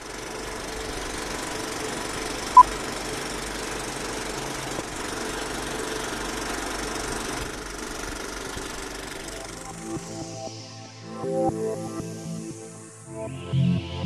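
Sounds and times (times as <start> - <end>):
film projector running: 0.0 - 9.8.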